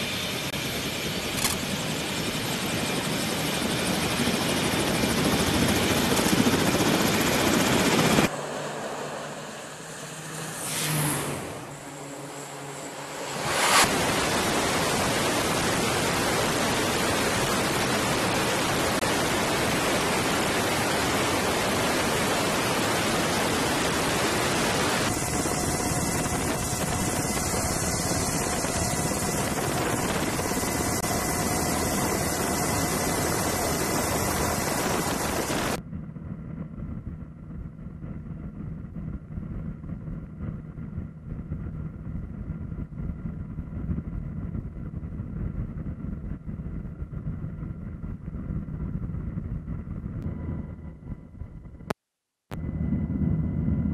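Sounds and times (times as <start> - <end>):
aircraft engine noise: 0.0 - 53.9
wind rushing: 5.0 - 35.8
low fluctuating rumble: 7.5 - 51.9, 52.5 - 53.9
faint steady hum: 14.5 - 53.9.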